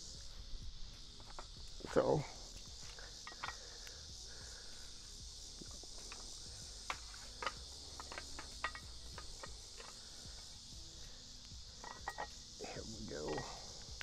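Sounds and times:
insect chorus: 0.0s - 14.0s
metal clicks and clinks: 3.2s - 3.6s, 7.3s - 10.0s, 11.8s - 12.3s.

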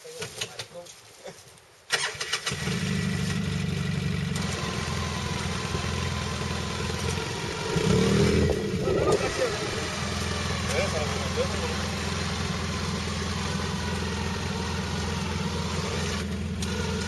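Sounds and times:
engine starting and running: 1.9s - 17.0s.

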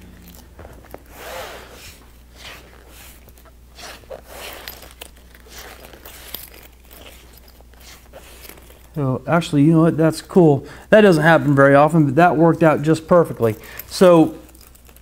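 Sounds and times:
zipper rustling and rubbing: 0.0s - 9.2s, 13.3s - 15.0s.

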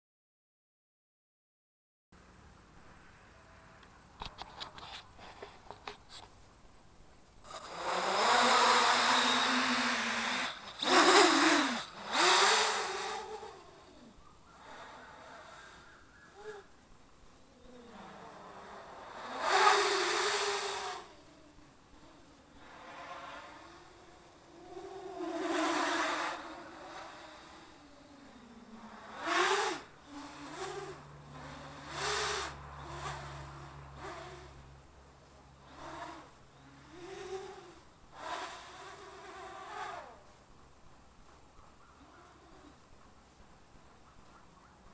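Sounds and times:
drone motors buzzing whine: 7.4s - 16.7s, 17.6s - 34.8s.

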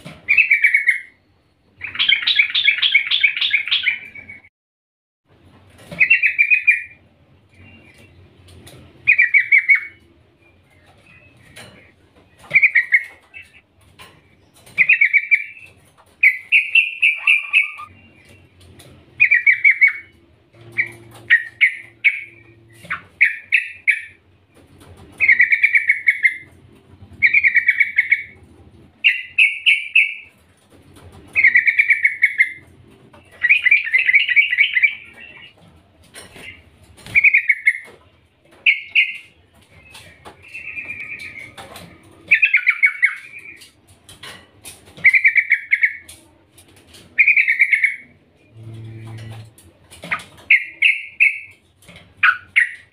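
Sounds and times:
bird chattering call: 16.2s - 17.9s.

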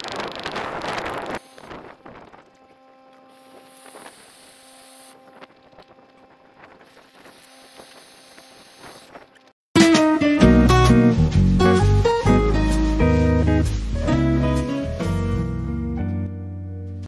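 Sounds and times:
air pump humming: 0.1s - 9.5s.

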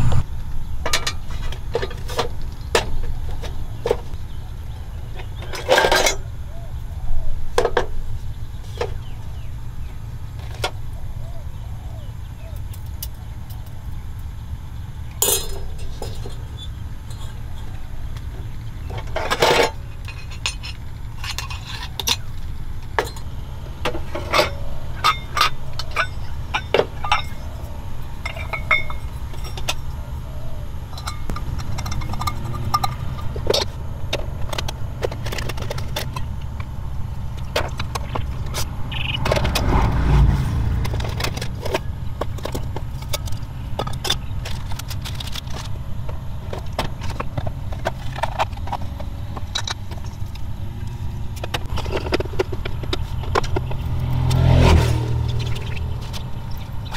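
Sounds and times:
steady low rumble: 0.0s - 54.3s, 55.0s - 56.9s
metal coffee gear clinking: 15.2s - 17.4s, 28.2s - 29.8s.

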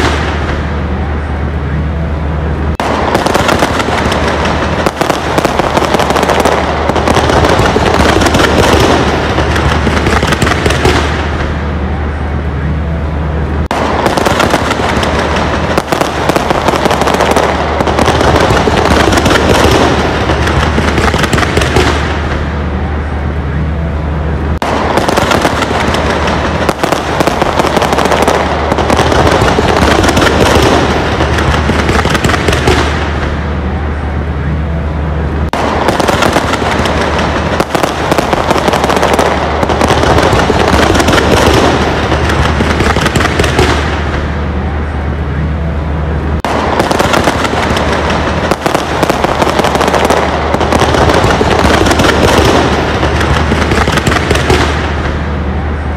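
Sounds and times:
fireworks banging and crackling: 0.0s - 55.9s.

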